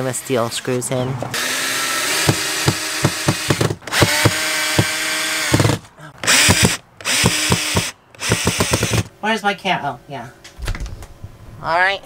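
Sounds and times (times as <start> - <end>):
cordless drill motor whining: 1.3 - 9.1.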